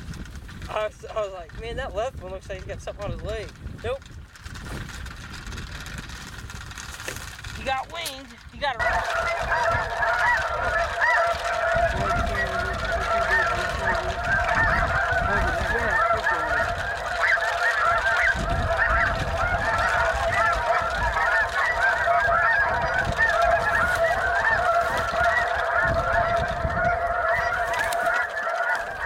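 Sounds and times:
geese honking: 0:07.5 - 0:29.0.

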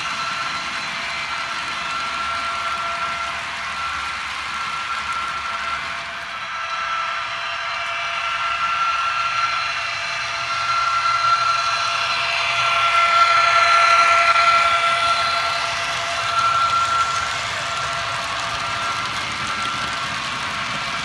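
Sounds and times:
wagons rolling on track: 0:00.0 - 0:06.4, 0:12.4 - 0:21.0
model train motor whine: 0:00.0 - 0:21.0.

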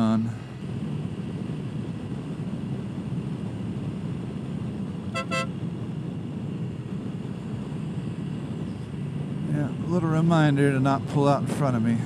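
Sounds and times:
wind and road noise: 0:00.0 - 0:12.0
scooter horn tooting: 0:05.1 - 0:05.5.

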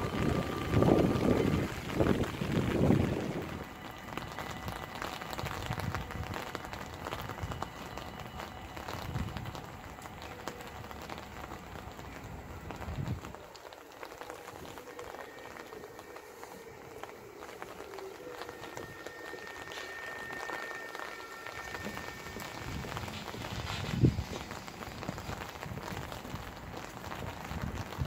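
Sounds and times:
wind rumbling on microphone: 0:00.0 - 0:13.5, 0:14.3 - 0:28.0
electric train whine: 0:00.0 - 0:28.0
rain pattering: 0:00.0 - 0:28.0.

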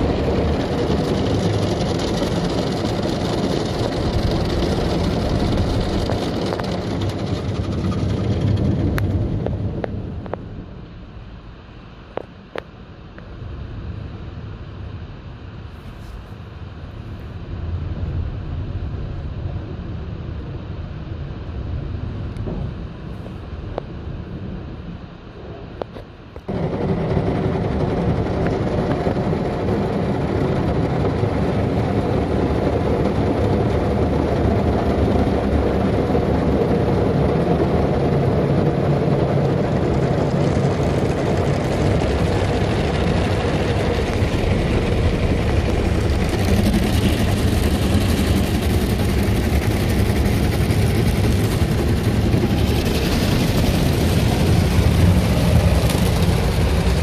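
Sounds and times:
water jets spraying on car: 0:00.0 - 0:09.8, 0:31.1 - 0:57.0
machinery rumble: 0:00.0 - 0:15.6, 0:16.6 - 0:57.0.

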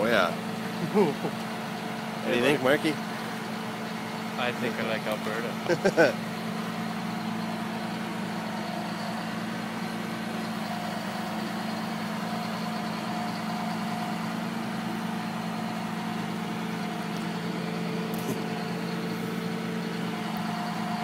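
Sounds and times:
truck engine idling: 0:00.0 - 0:21.0.

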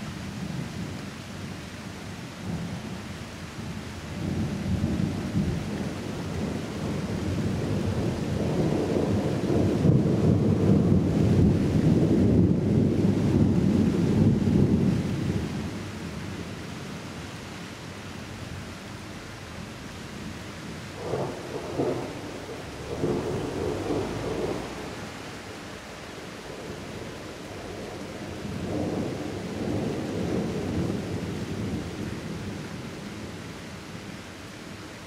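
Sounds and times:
thunder rumbling: 0:04.2 - 0:16.6, 0:20.9 - 0:25.5, 0:26.4 - 0:33.4.

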